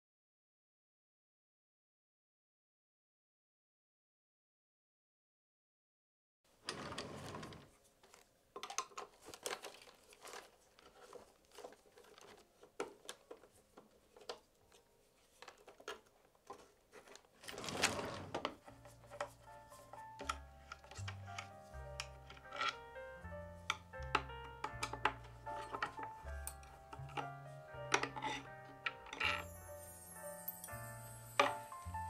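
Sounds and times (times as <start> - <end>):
handling clicks and crinkling: 6.6 - 29.5.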